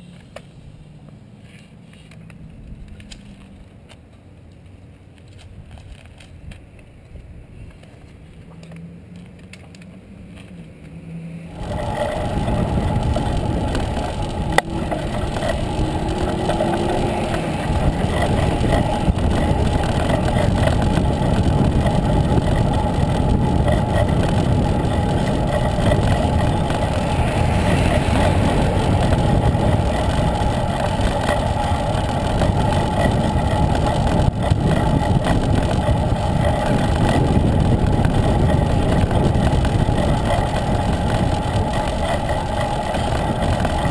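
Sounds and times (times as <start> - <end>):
bicycle road noise: 0.0 - 43.9
wind buffeting microphone: 11.5 - 43.9.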